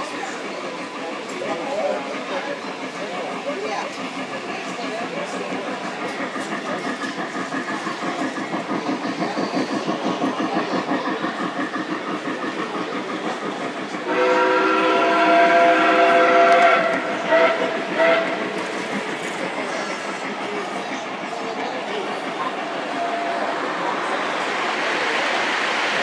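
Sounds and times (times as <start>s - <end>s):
model trains clattering on track: 0.0s - 26.0s
model train horn blasts: 14.0s - 18.4s.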